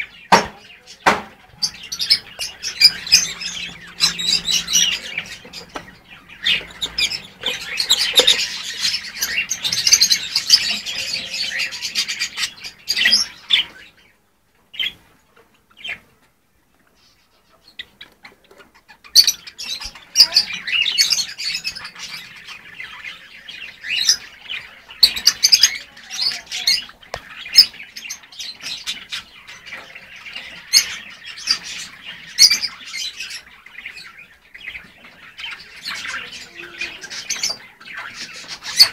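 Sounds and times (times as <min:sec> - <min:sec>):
lovebirds chattering and squawking: 0:00.0 - 0:38.9.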